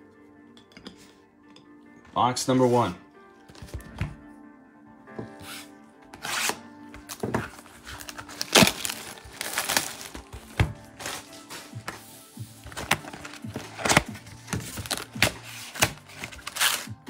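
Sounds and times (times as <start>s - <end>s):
background music: 0.0s - 17.0s
cardboard tearing and crinkling: 6.2s - 11.8s, 12.6s - 17.0s.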